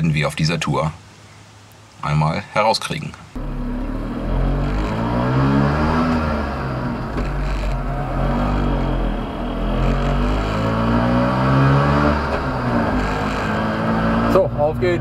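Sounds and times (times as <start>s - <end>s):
small two-stroke engine accelerating: 3.4s - 14.5s.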